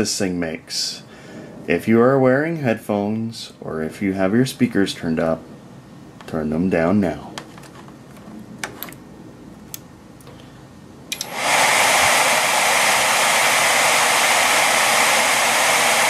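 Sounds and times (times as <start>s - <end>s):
server fans rushing: 10.8s - 16.0s.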